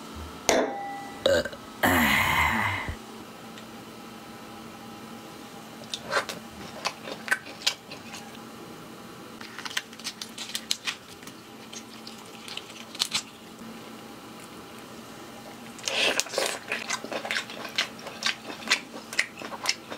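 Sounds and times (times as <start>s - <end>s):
wet squishes: 9.4s - 13.4s.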